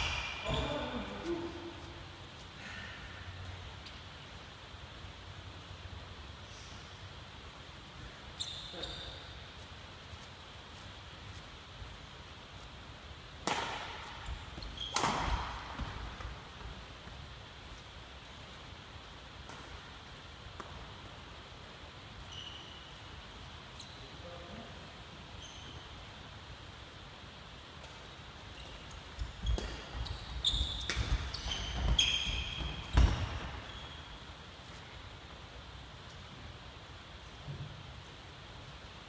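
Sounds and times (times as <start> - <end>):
shoe squeaks on wooden floor: 8.4 - 9.3, 14.5 - 15.0, 28.6 - 34.2
racket hitting shuttlecock: 13.4 - 16.4, 19.4 - 20.0, 29.5 - 30.0, 30.8 - 32.0.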